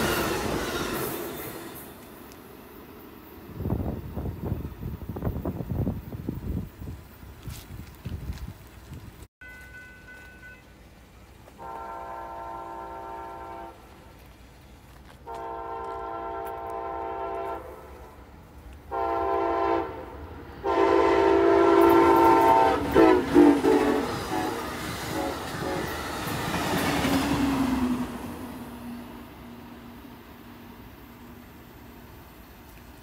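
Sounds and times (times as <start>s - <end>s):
train wheels rushing on rails: 0.0s - 33.0s
train horn blasts: 9.4s - 10.9s, 11.5s - 13.9s, 15.2s - 18.1s, 18.9s - 26.1s.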